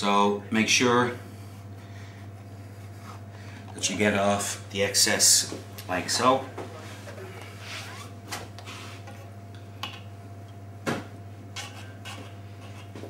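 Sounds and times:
low electrical hum: 0.0s - 13.0s
knife scraping on chopping board: 11.6s - 13.0s.

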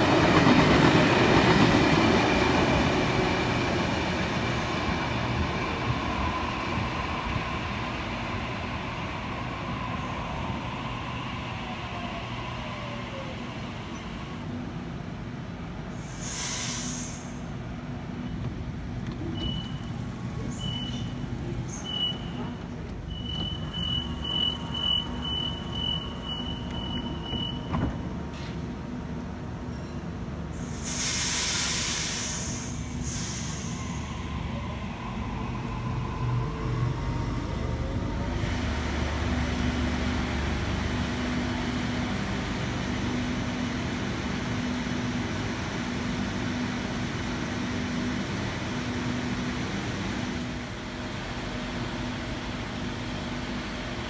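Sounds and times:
air hiss: 16.0s - 17.5s, 30.6s - 34.1s
door closing warning beeps: 19.3s - 19.9s, 23.1s - 27.9s
train doors shutting click: 26.4s - 28.6s.

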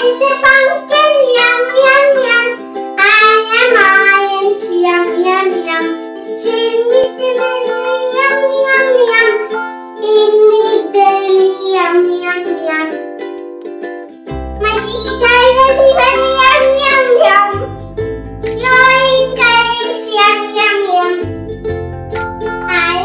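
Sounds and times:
child singing: 0.0s - 13.0s, 14.6s - 17.7s, 18.6s - 21.3s, 22.6s - 23.0s
light backing music: 0.0s - 23.0s.

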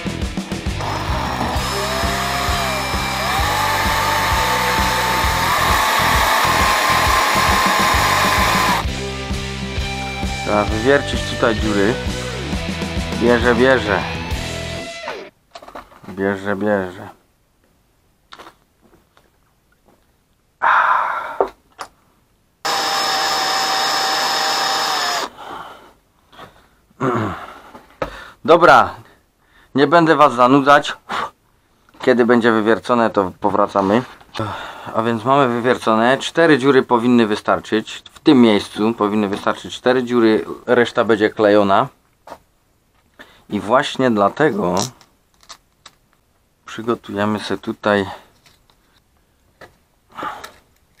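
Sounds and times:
cordless drill motor whine: 0.8s - 8.9s, 14.8s - 15.3s, 22.6s - 25.3s.

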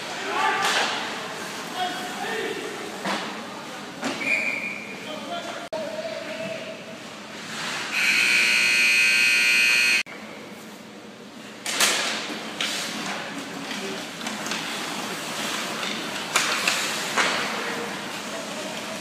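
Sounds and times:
noisy rink din: 0.0s - 19.0s
arena horn: 7.9s - 10.1s.

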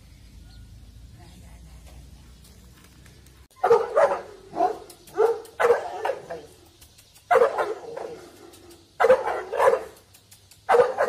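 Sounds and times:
large dog barking: 3.6s - 6.6s, 7.3s - 10.0s, 10.7s - 11.0s.

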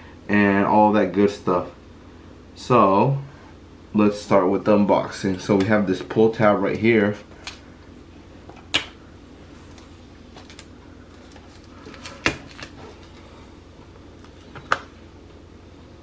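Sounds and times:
faint steady hum: 0.0s - 16.0s
plastic wrap crackling: 9.7s - 13.2s.

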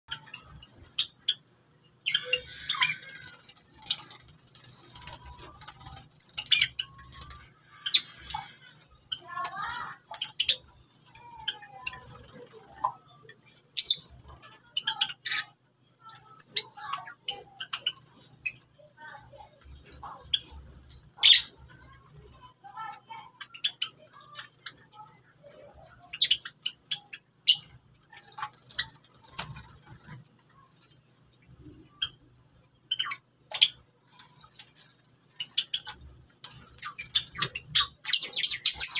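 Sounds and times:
high bird chirps: 0.1s - 22.0s, 31.6s - 38.9s.

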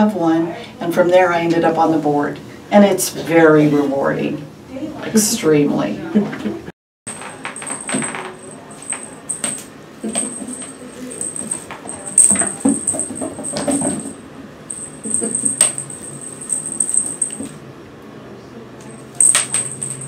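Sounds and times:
clicks and taps on hard floor: 7.1s - 14.1s
wand toy jingling: 7.6s - 17.5s, 19.0s - 20.0s.

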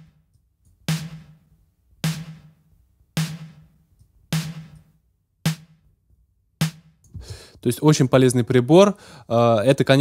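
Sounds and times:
snare drum hits: 0.9s - 1.4s, 2.0s - 2.5s, 4.4s - 4.8s.

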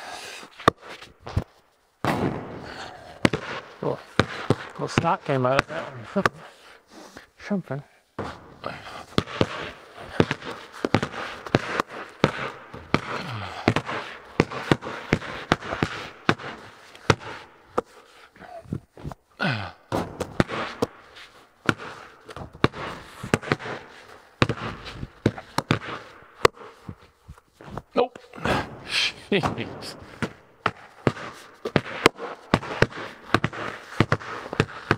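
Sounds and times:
basketballs bouncing on concrete: 0.6s - 6.5s, 8.2s - 34.9s
basketball hitting hoop: 2.0s - 5.9s, 8.2s - 17.2s, 19.9s - 20.9s, 21.6s - 23.8s, 29.4s - 34.9s.

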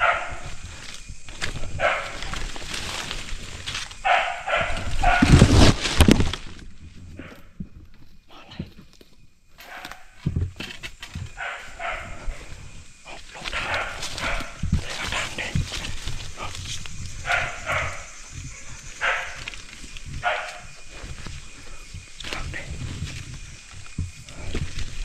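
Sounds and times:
dog barking: 0.0s - 0.5s, 1.8s - 2.2s, 4.0s - 5.4s, 9.6s - 10.1s, 11.4s - 12.3s, 13.5s - 15.4s, 17.2s - 18.2s, 19.0s - 19.5s, 20.2s - 20.7s
rustling: 0.1s - 25.0s.

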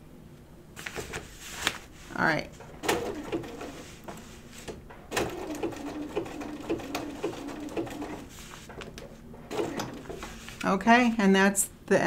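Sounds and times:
sewing machine stitching: 2.7s - 4.0s, 4.7s - 10.4s.

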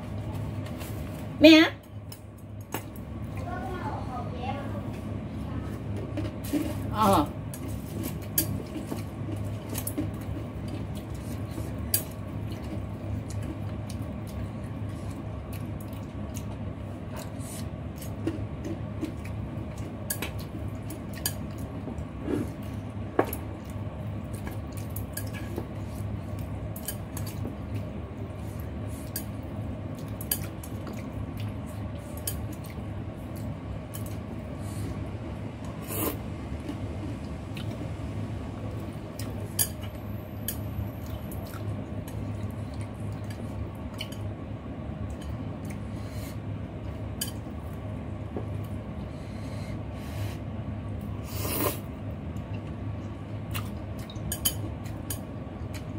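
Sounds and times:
wet chewing of noodles: 7.5s - 55.9s.

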